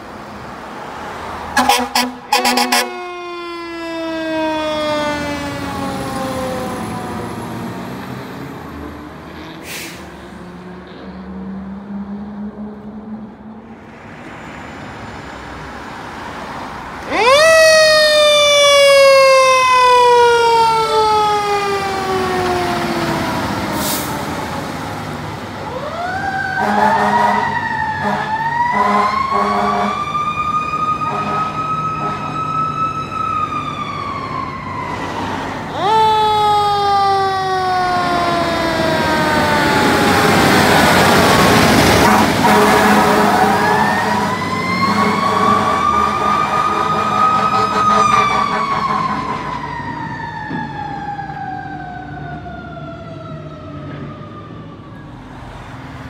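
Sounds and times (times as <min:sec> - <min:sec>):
fire truck siren wailing: 0:00.0 - 0:13.8, 0:14.4 - 0:56.0
air horn blasts: 0:01.6 - 0:03.1, 0:26.6 - 0:30.0, 0:31.0 - 0:32.4, 0:41.9 - 0:49.5.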